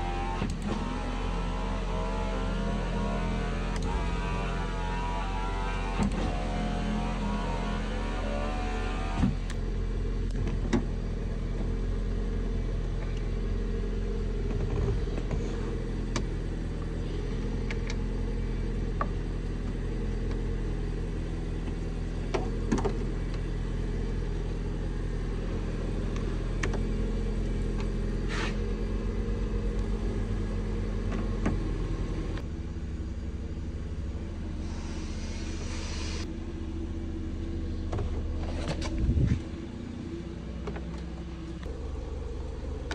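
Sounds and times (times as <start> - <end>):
car engine idling: 0.0 - 42.9.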